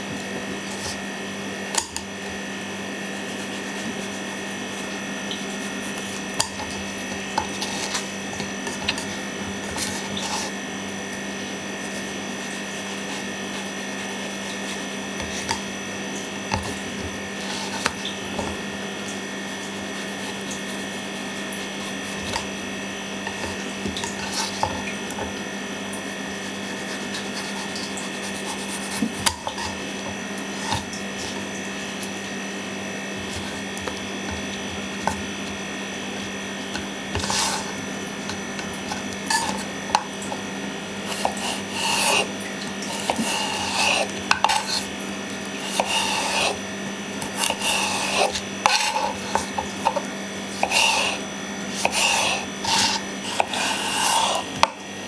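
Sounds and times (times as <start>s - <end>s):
steady electrical hum: 0.0s - 55.0s
knife cutting cucumber on board: 5.6s - 10.6s, 12.9s - 15.7s, 16.5s - 18.6s, 19.5s - 22.6s, 23.2s - 25.4s, 26.2s - 31.4s, 33.2s - 35.6s, 36.7s - 40.4s, 41.0s - 44.9s, 45.6s - 46.6s, 47.2s - 54.8s.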